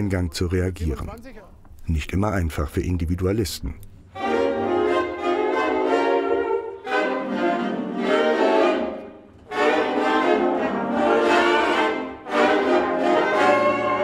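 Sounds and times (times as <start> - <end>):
saxophone section playing chords: 4.1 - 14.0.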